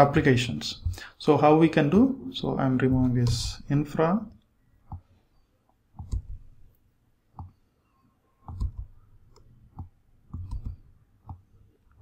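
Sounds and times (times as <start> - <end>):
keyboard key clicks: 9.8 - 11.4.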